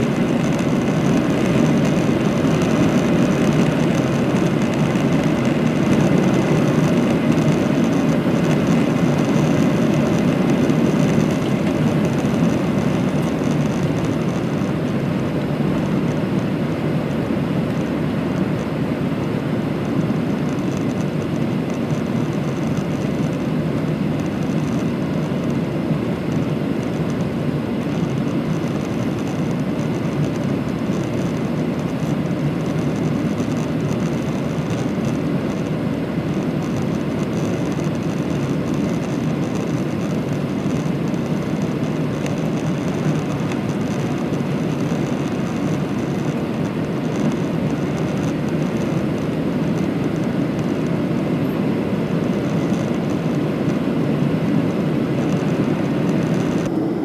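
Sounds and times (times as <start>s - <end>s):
jet engine cabin drone: 0.0s - 57.0s
rushing air: 54.1s - 57.0s.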